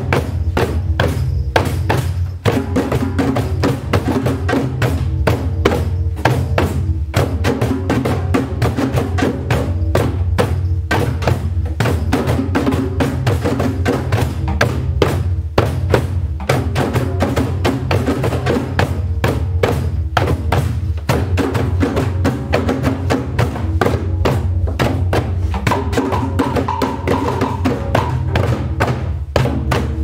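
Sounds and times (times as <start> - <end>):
group hand drumming: 0.0 - 30.0.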